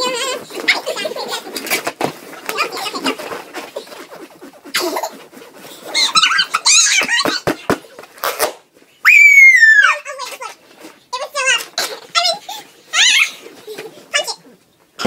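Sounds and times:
girls squealing and giggling: 5.8 - 7.5, 9.0 - 10.0
shrill shriek sliding down: 9.0 - 10.0.

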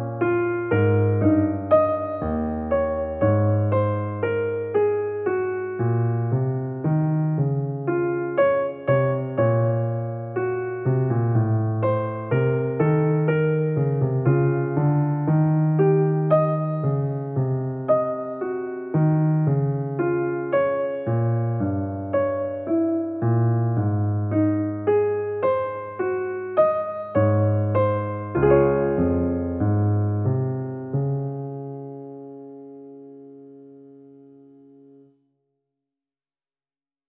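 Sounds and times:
slow solo piano melody: 0.0 - 35.2.

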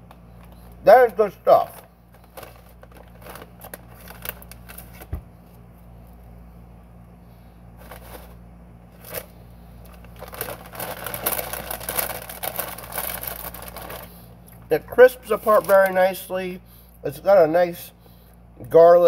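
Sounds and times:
steady low hum: 0.0 - 19.0
potato chip crunching: 9.9 - 14.6, 15.2 - 16.0.

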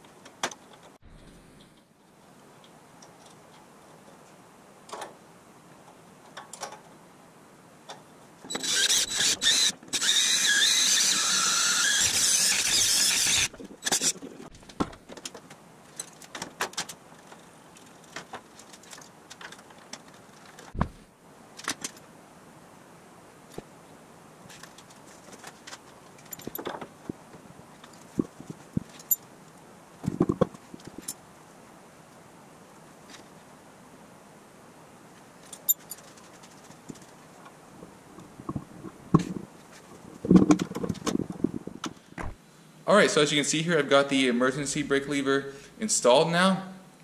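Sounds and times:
metal parts clinking: 26.2 - 26.7, 35.4 - 37.1.

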